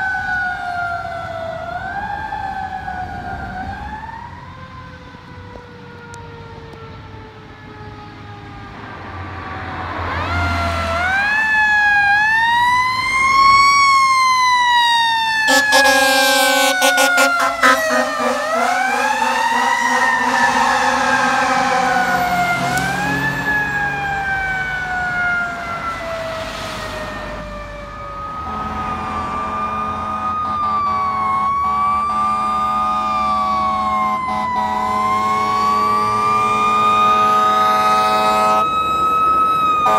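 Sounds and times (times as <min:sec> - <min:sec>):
fire engine sirens wailing: 0:00.0 - 0:39.9
horn blast: 0:15.5 - 0:23.3, 0:28.4 - 0:33.2, 0:34.0 - 0:38.6.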